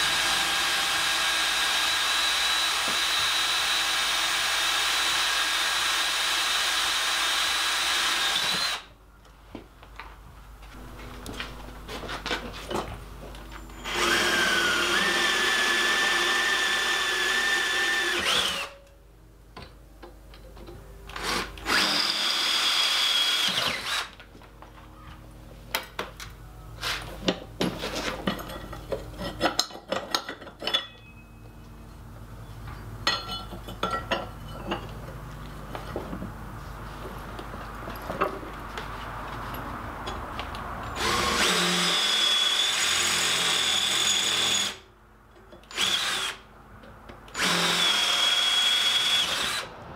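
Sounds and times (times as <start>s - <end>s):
cordless drill boring into steel: 0.0s - 8.9s, 13.8s - 18.8s, 21.2s - 24.1s, 41.0s - 44.8s, 45.7s - 46.4s, 47.3s - 49.7s.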